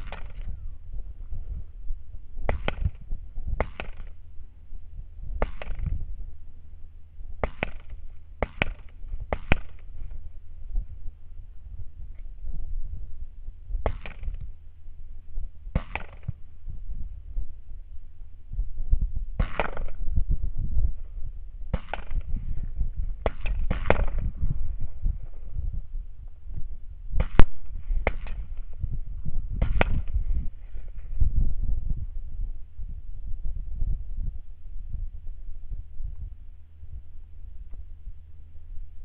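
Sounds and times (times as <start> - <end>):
rifle shots: 0.0 - 0.6, 2.5 - 4.2, 5.4 - 6.0, 7.4 - 10.2, 13.8 - 14.4, 15.7 - 16.4, 19.4 - 20.0, 21.7 - 22.5, 23.2 - 24.4, 27.2 - 28.8, 29.6 - 30.2
steady low rumble: 0.0 - 39.0.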